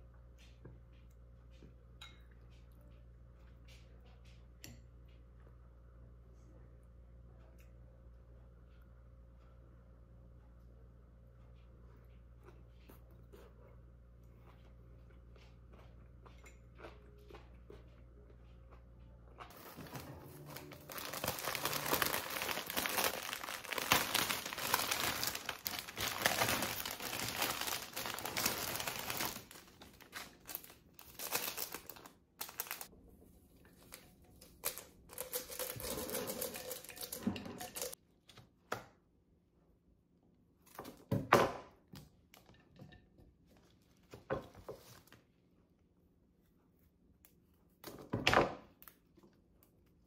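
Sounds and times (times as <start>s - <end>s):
low room hum: 0.0s - 50.0s
flower stems rustling: 19.5s - 32.9s
plastic wrapping crinkling and tearing: 19.5s - 32.9s, 33.8s - 38.0s.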